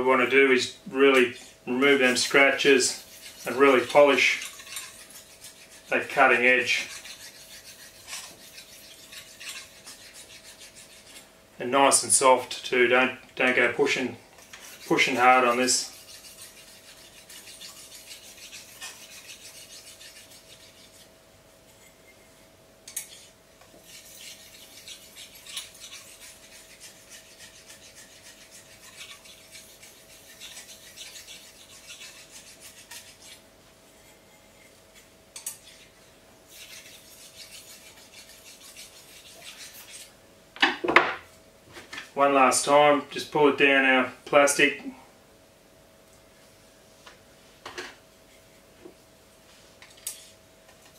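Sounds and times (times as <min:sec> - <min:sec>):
stone scraping knife edge: 0:01.2 - 0:11.3, 0:14.4 - 0:21.1, 0:22.9 - 0:40.1.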